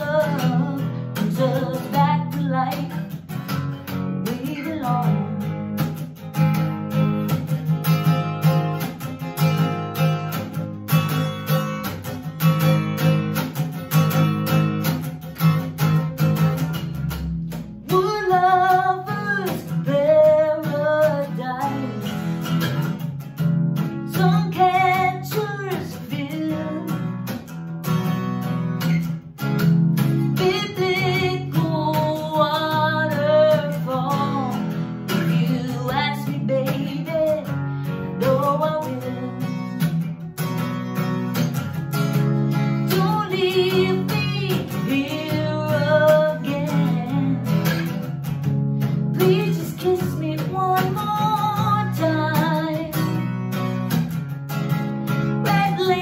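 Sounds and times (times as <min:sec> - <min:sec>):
woman singing: 0:00.0 - 0:07.4, 0:17.8 - 0:22.9, 0:23.9 - 0:27.4, 0:30.0 - 0:40.2, 0:42.5 - 0:48.2, 0:48.8 - 0:53.9, 0:55.1 - 0:56.0
acoustic guitar strumming: 0:00.0 - 0:56.0.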